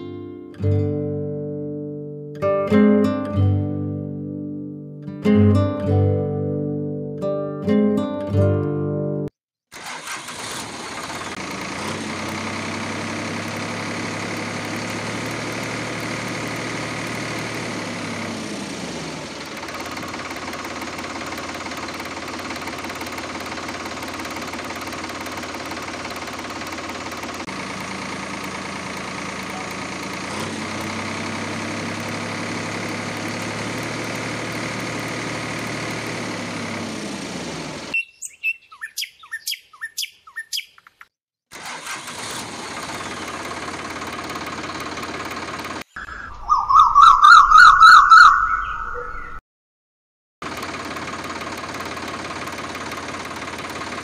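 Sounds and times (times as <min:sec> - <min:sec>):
tractor engine running: 0:09.7 - 0:38.0, 0:41.5 - 0:46.0, 0:50.4 - 0:54.0
birds chirping: 0:38.0 - 0:41.1, 0:45.9 - 0:49.4.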